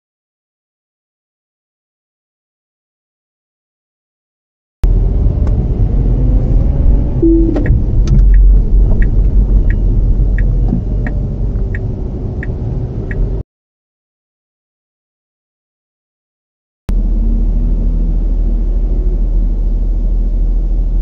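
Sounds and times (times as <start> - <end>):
car cabin road rumble: 4.8 - 13.4.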